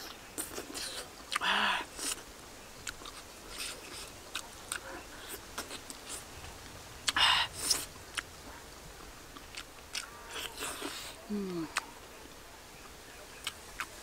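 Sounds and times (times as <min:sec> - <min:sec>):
wet chewing and lip-smacking: 0:00.0 - 0:06.3, 0:07.0 - 0:08.3, 0:09.3 - 0:11.9, 0:13.4 - 0:14.0.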